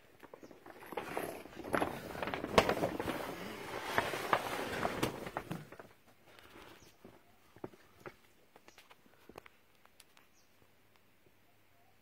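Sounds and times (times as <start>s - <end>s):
plastic tarpaulin rustling: 0.0s - 6.8s.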